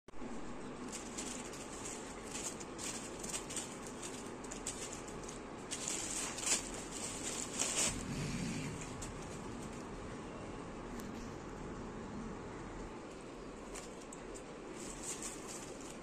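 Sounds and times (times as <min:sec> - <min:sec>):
plastic bag crinkling: 0:00.6 - 0:10.0, 0:13.6 - 0:16.0.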